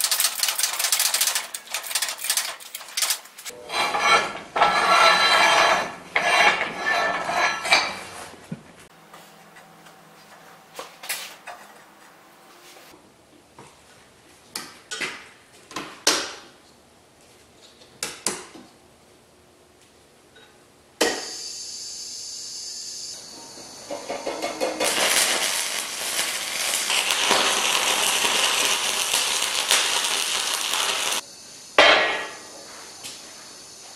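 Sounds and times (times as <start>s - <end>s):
steel parts scraping and rattling: 0.0s - 7.9s, 23.9s - 31.2s.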